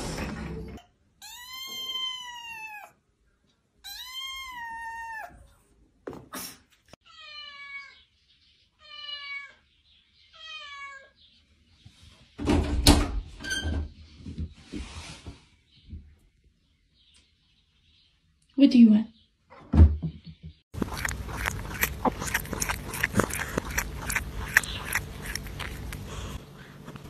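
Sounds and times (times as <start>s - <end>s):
kitten meowing: 1.2s - 2.9s, 3.8s - 5.4s.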